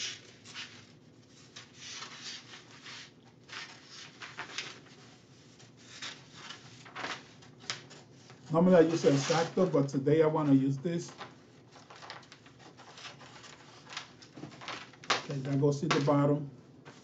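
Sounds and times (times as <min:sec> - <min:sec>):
paper rustling and scraping: 0:00.0 - 0:17.0.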